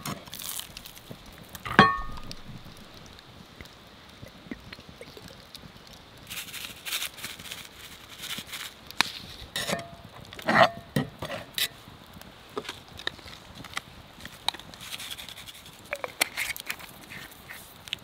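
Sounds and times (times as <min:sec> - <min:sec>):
heavy pan knocks and clinks: 0:01.7 - 0:02.5
seasoning shaker scratchy shakes: 0:06.3 - 0:09.5, 0:14.3 - 0:18.0.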